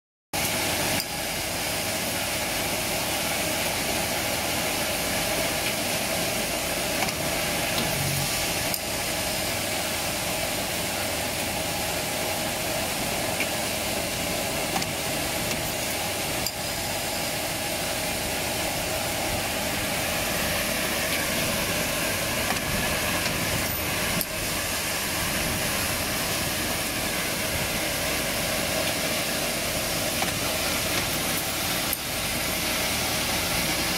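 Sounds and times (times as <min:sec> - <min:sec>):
machine running steadily: 0:00.4 - 0:33.9.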